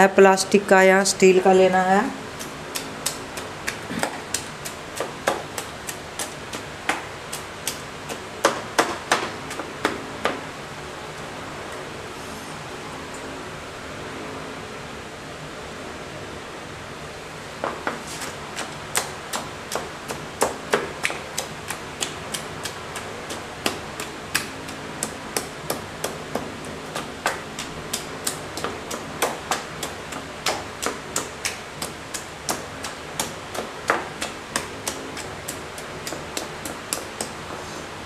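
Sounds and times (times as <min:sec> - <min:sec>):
wooden masher pounding fruit: 0:02.2 - 0:10.4, 0:17.6 - 0:37.4.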